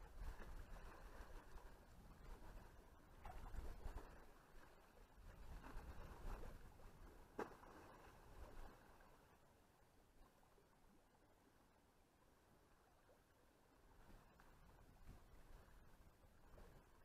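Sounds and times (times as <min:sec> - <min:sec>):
water sloshing around waders: 0:00.1 - 0:09.3.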